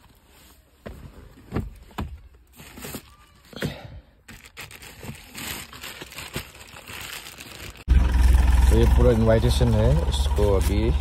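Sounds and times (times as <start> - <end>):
plastic bag rustling: 4.2 - 7.9
low hum: 7.9 - 11.0.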